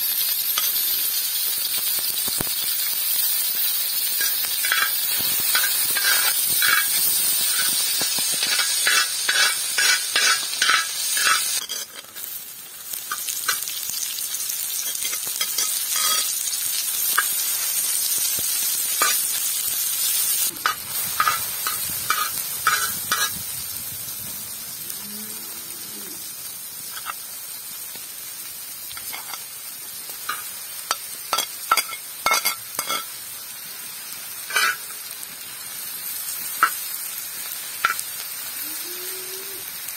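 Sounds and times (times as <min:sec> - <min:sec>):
vegetables sizzling in a pan: 0:00.0 - 0:39.9
metal skimmer scraping a pan: 0:04.2 - 0:12.2.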